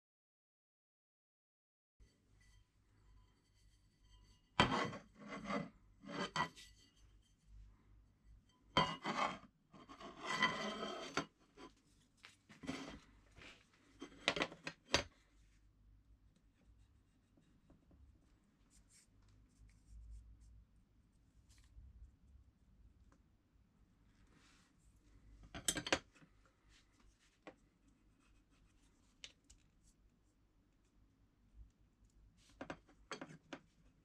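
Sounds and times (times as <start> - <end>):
scraping strokes on hard surface: 2.1 - 7.6, 8.5 - 14.4.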